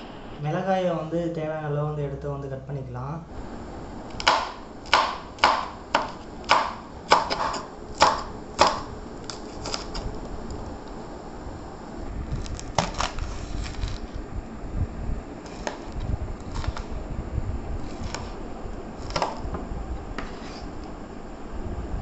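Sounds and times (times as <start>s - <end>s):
knife chopping on wooden board: 4.2s - 10.0s.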